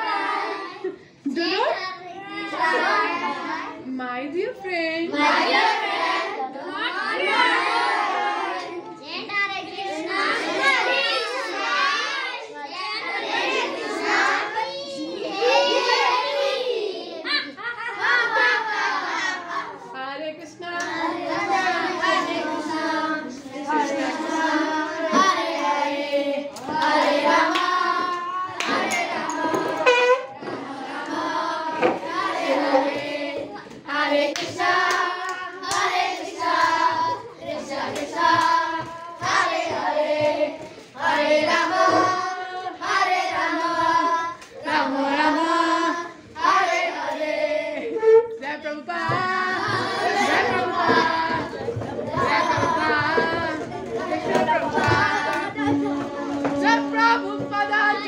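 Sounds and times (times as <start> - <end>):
children singing: 0.0 - 1.3, 2.0 - 3.9, 5.1 - 58.0
hand clapping: 26.5 - 29.8, 34.3 - 37.2.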